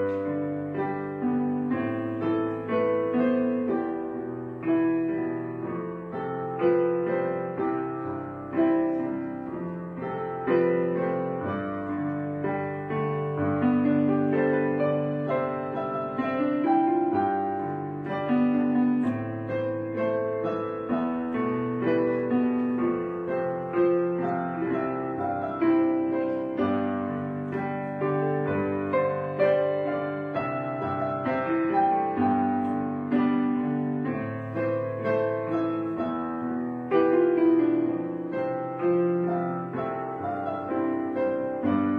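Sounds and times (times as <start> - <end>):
slow piano music: 0.0 - 41.9.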